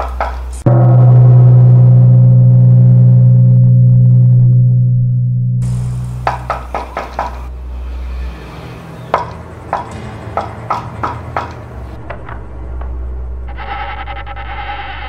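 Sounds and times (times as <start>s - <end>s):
steady low hum: 0.5s - 8.4s, 11.7s - 15.0s
low drone: 0.6s - 10.7s, 11.7s - 15.0s.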